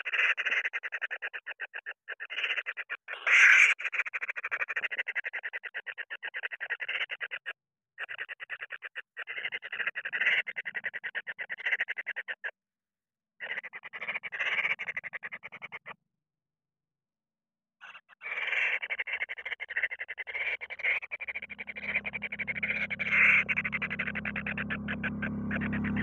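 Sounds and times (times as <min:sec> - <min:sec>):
harsh bird call: 0:20.4 - 0:26.0
nestlings churring calls: 0:20.4 - 0:26.0.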